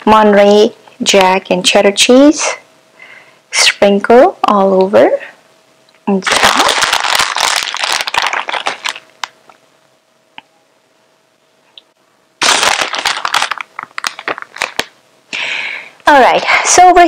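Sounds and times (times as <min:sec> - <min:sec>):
cheese sprinkled rustling: 0:06.2 - 0:09.3, 0:12.4 - 0:14.9.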